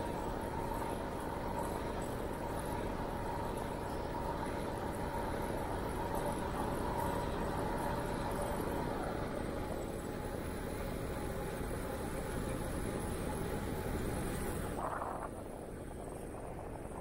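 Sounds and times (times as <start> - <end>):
tyres rolling on pavement: 0.0 - 14.8
faint high hum: 0.0 - 17.0
wind over microphone: 14.4 - 17.0.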